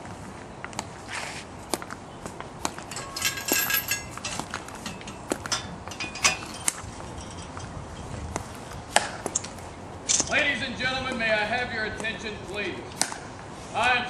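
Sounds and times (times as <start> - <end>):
footsteps on stone: 0.0 - 9.7
metallic rifle clinks: 2.8 - 8.3.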